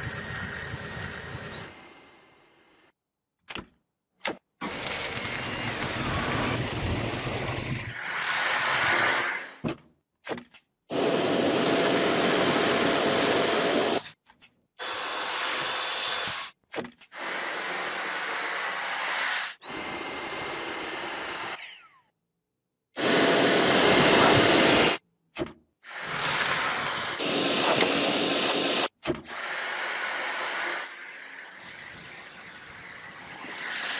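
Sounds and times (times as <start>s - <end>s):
vacuum cleaner suction with whine: 4.7s - 9.6s, 10.9s - 14.0s, 17.2s - 21.5s, 23.0s - 25.0s, 25.9s - 33.9s.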